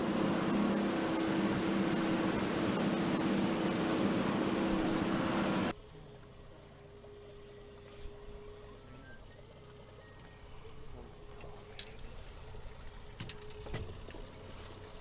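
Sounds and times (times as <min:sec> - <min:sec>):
rushing wind and water: 0:00.0 - 0:05.7
boat engine humming: 0:00.0 - 0:15.0
faint steady tone: 0:00.0 - 0:15.0.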